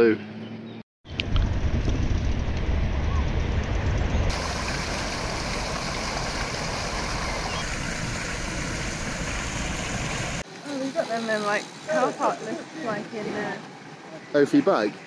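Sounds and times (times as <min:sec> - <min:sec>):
water running over fountain basin: 0:04.3 - 0:15.0.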